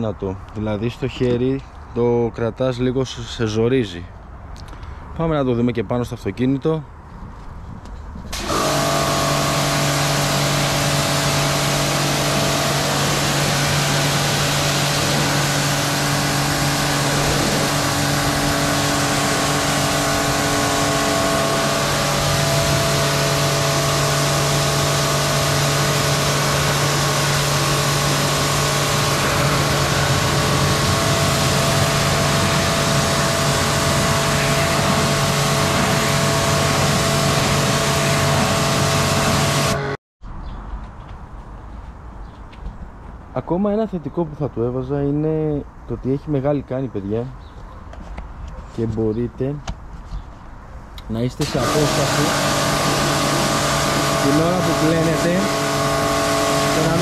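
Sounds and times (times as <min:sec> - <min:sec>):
high-pressure water jet hissing: 0:08.3 - 0:39.9, 0:51.4 - 0:57.0
pressure washer motor hum: 0:08.3 - 0:40.0, 0:51.4 - 0:57.0.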